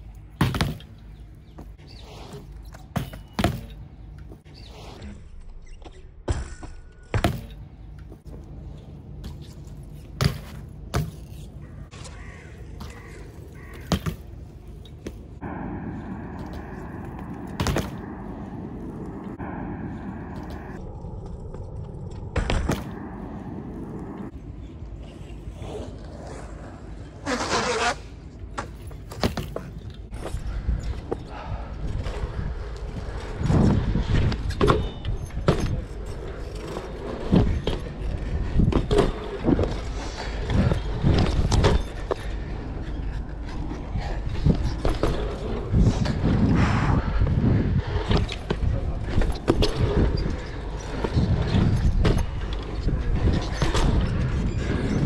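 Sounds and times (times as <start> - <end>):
harsh rasp of bike grinding: 27.2 - 28.1
tyres rolling on concrete: 47.4 - 55.0.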